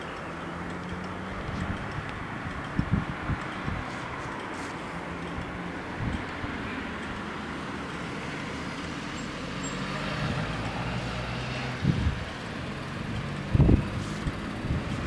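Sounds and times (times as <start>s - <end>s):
road traffic rumble: 0.0s - 15.0s
wind buffeting microphone: 1.2s - 4.6s, 5.3s - 6.6s, 11.7s - 15.0s
engine running: 9.8s - 15.0s.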